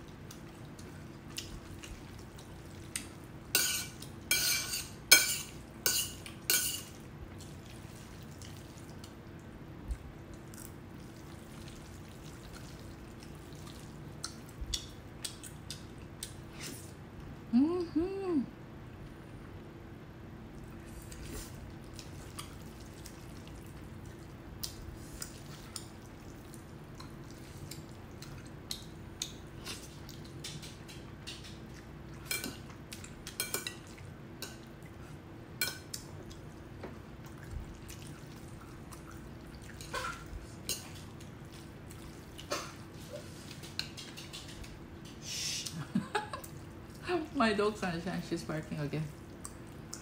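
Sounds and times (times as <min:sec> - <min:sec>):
faint steady hum: 0:00.0 - 0:50.0
wet smacks and slurps: 0:37.2 - 0:44.8, 0:49.1 - 0:50.0.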